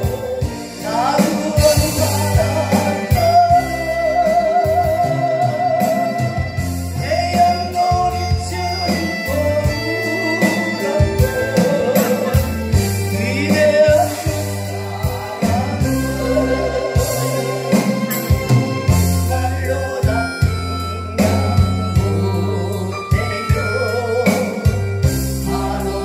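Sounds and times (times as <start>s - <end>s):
instrumental accompaniment with beat: 0.0s - 26.0s.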